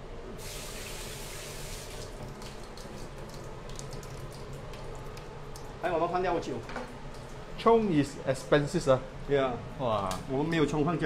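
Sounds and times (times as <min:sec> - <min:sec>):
tap running into steel sink: 0:06.6 - 0:07.0.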